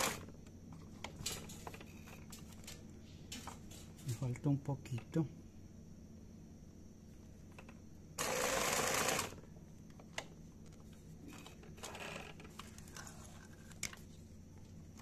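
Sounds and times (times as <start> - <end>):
sewing machine stitching: 8.2 - 9.4.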